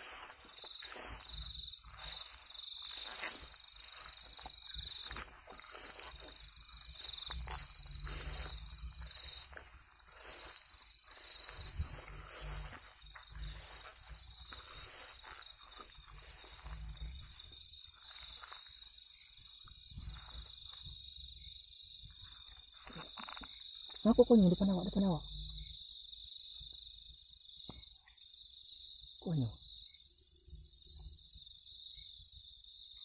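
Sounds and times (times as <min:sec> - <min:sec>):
rustling through grass: 0:00.0 - 0:18.8
insect pulsing chirr: 0:00.0 - 0:33.0
night insects trilling chorus: 0:00.0 - 0:33.0.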